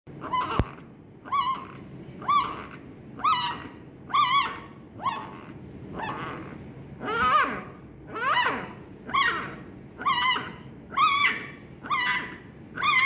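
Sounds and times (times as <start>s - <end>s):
puppy whimpering: 0.2s - 13.0s.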